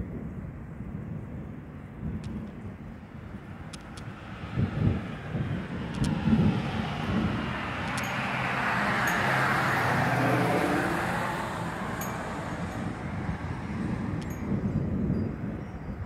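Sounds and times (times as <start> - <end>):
low rumbling: 0.0 - 15.6
car passing: 3.1 - 14.8.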